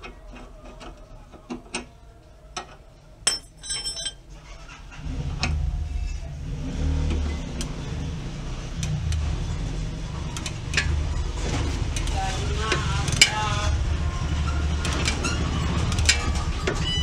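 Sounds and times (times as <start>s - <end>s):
metal tools clinking: 3.2s - 4.3s.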